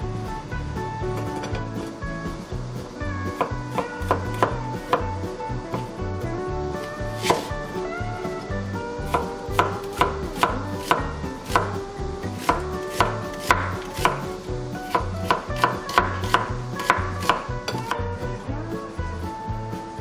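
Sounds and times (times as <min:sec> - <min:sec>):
knife slicing onion on board: 0:03.3 - 0:05.1, 0:06.8 - 0:07.8, 0:09.0 - 0:18.1.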